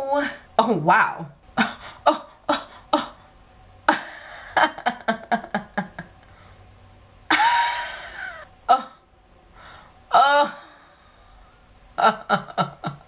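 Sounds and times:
woman laughing: 0:01.6 - 0:03.2, 0:03.9 - 0:06.2, 0:07.3 - 0:09.0, 0:12.0 - 0:13.0
high breathy squeal of laughter: 0:07.3 - 0:08.5.

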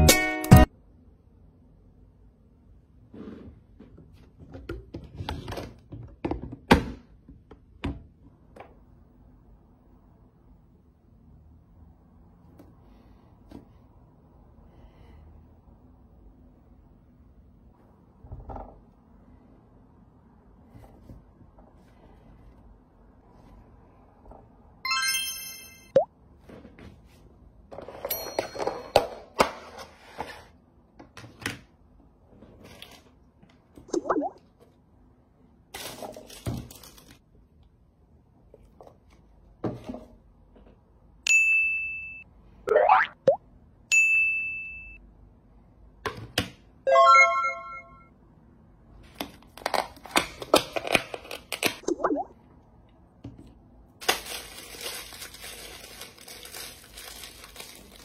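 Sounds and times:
plastic packaging crinkling: 0:35.8 - 0:37.2, 0:54.0 - 0:58.0.

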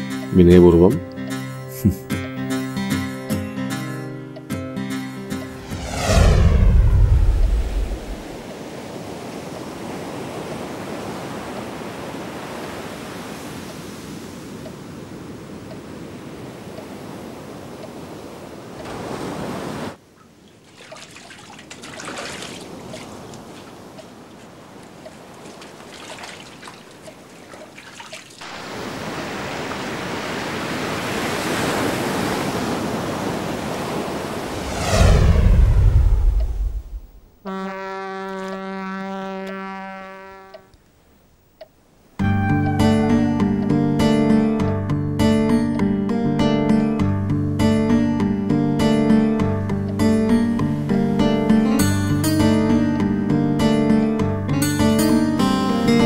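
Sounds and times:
sea waves and surf: 0:04.9 - 0:37.7, 0:41.7 - 0:56.0
steady rushing noise: 0:05.3 - 0:08.8, 0:34.2 - 0:37.4
loud low boom: 0:05.6 - 0:08.4
shower water trickling: 0:20.5 - 0:24.1, 0:24.9 - 0:28.7.

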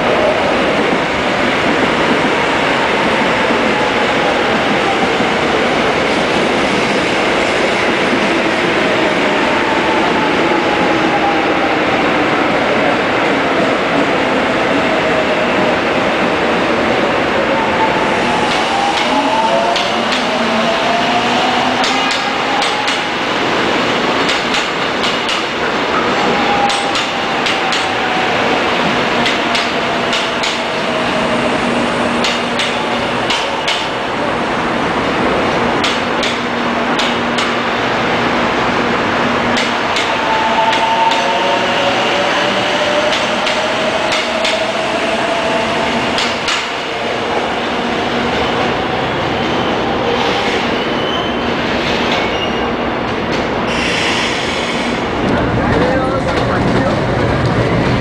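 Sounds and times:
electric train rolling: 0:00.0 - 0:58.0
train whines sliding in pitch: 0:25.3 - 0:34.8, 0:36.5 - 0:53.0, 0:53.6 - 0:58.0.

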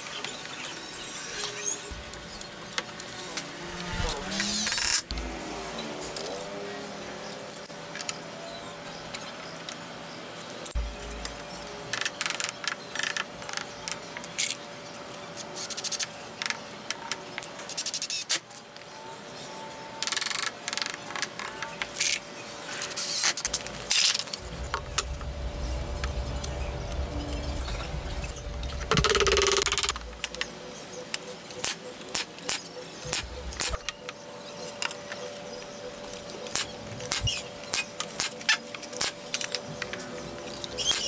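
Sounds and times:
steady low hum: 0:10.7 - 0:12.0, 0:23.4 - 0:32.2, 0:32.8 - 0:38.2.

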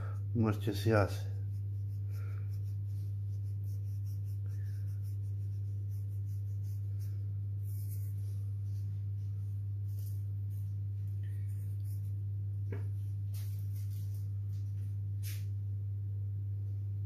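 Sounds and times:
steady low hum: 0:00.0 - 0:17.0
seasoning sprinkled faint rustling: 0:01.2 - 0:12.3.

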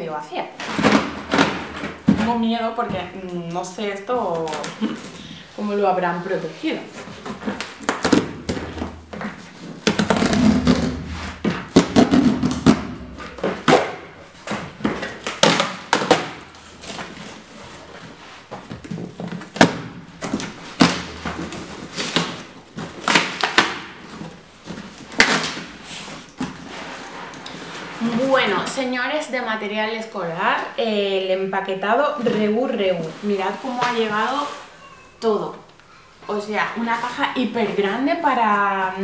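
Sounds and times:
cardboard thumps: 0:07.1 - 0:17.3, 0:18.5 - 0:25.7
cardboard tearing: 0:09.8 - 0:14.0.

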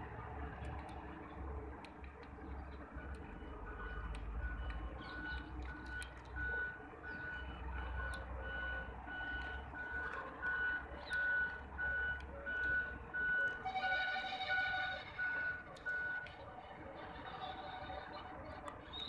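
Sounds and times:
reversing alarm beeping: 0:03.2 - 0:16.3.

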